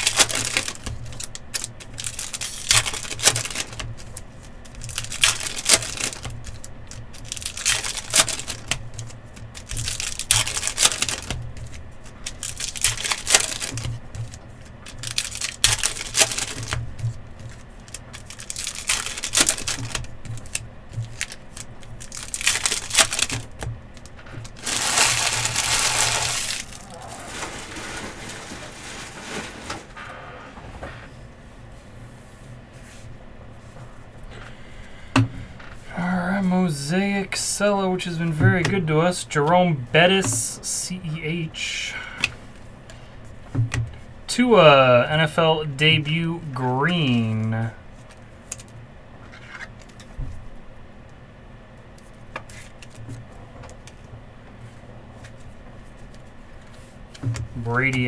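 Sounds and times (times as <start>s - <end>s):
wrappers crinkling and tearing: 0.0s - 16.8s, 17.5s - 29.8s.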